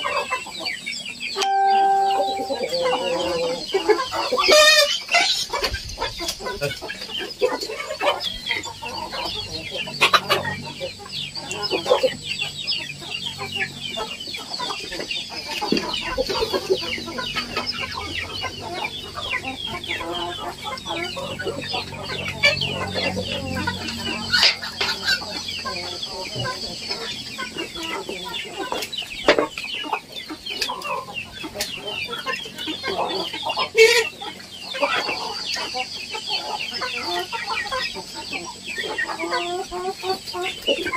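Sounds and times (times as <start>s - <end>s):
chickens clucking: 0.0s - 40.9s.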